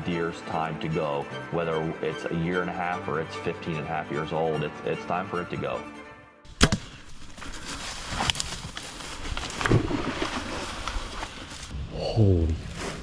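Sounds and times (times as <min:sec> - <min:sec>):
breathy voice sounds: 0:11.8 - 0:13.0.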